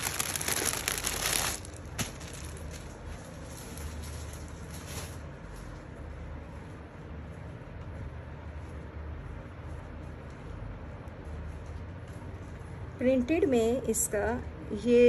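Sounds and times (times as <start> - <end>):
plastic packaging crinkling: 0.0 - 5.4.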